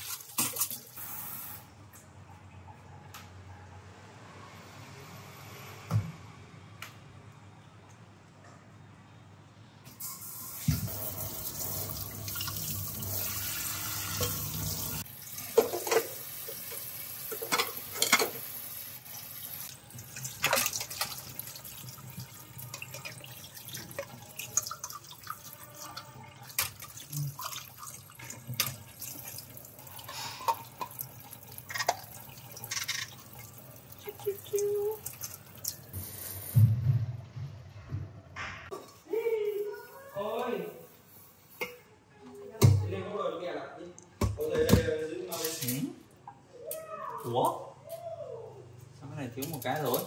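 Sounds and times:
dishes clinking: 0:15.5 - 0:18.4.

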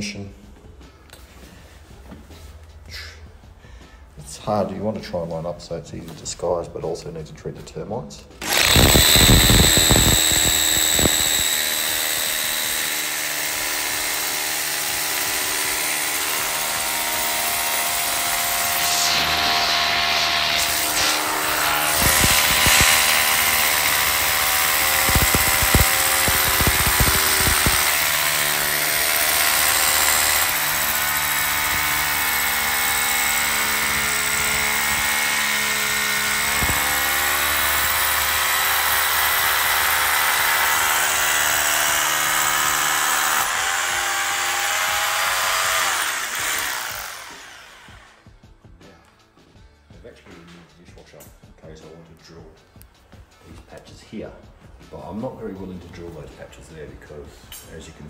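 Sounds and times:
hammer drill boring through wood: 0:08.4 - 0:48.3.

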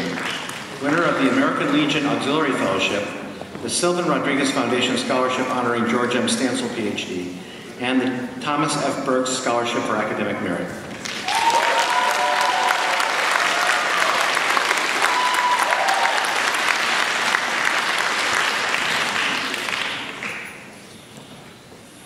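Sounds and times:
audience applauding: 0:00.0 - 0:02.4, 0:11.0 - 0:20.6.

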